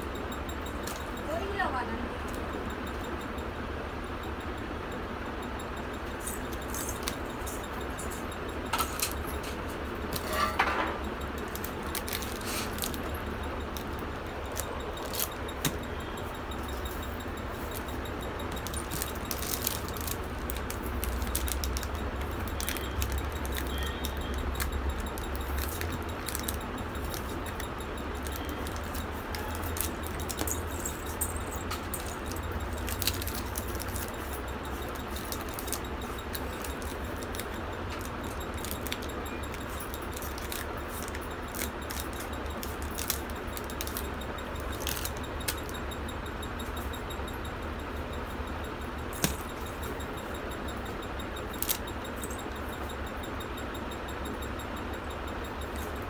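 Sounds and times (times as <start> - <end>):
small bells jingling: 5.7 - 56.0
plastic wrappers crinkling: 11.4 - 15.9, 16.6 - 45.8.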